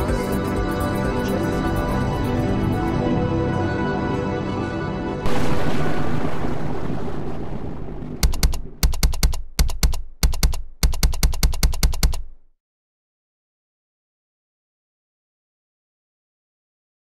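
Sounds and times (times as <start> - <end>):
cannon boom: 5.3 - 8.8
keystroke clicks: 8.2 - 12.5.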